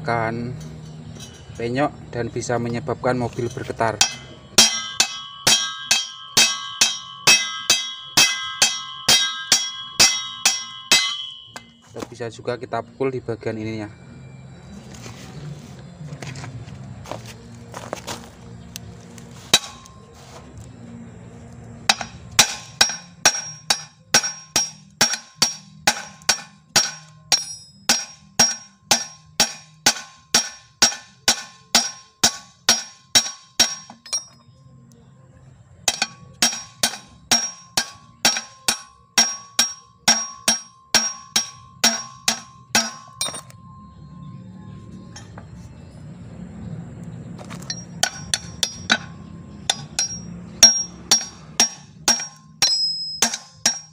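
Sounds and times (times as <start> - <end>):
hammer striking steel: 0.4 - 1.8, 3.4 - 12.2, 19.5 - 20.1, 21.9 - 34.4, 35.8 - 43.9, 45.0 - 45.5, 47.4 - 53.9.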